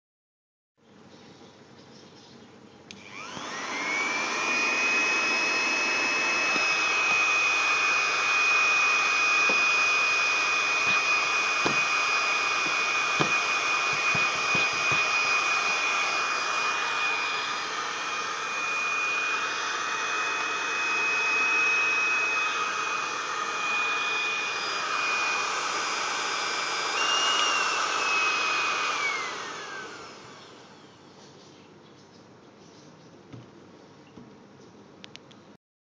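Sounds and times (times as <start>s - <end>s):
heat gun fan motor whine: 2.9s - 31.3s.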